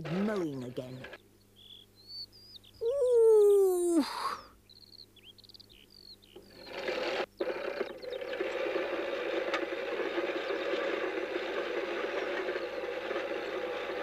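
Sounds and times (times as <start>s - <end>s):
push lawnmower whirring: 0.0s - 1.2s, 6.4s - 14.0s
faint bird chirps: 1.2s - 6.8s.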